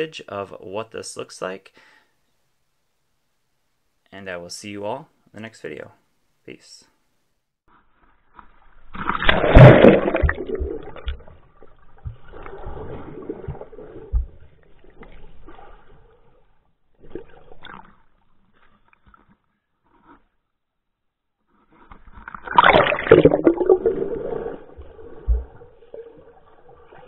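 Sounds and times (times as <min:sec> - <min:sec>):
water splashing and sloshing: 0:08.0 - 0:19.4, 0:21.8 - 0:27.0
low underwater thumps: 0:09.3 - 0:15.6.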